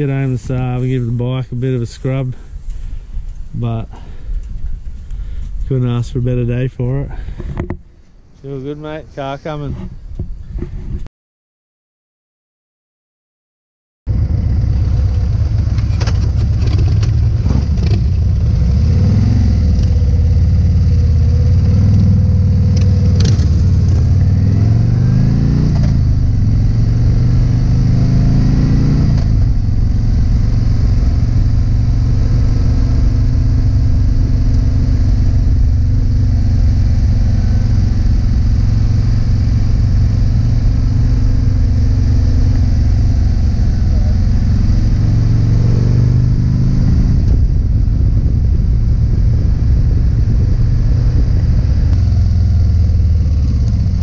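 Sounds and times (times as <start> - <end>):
motorcycle engine accelerating: 14.1 - 54.0.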